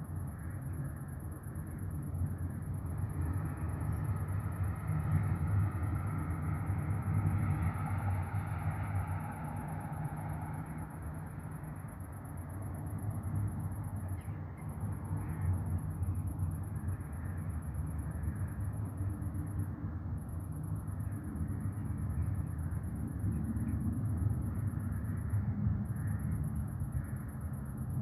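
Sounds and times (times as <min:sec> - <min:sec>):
distant traffic rumble: 0:00.0 - 0:28.0.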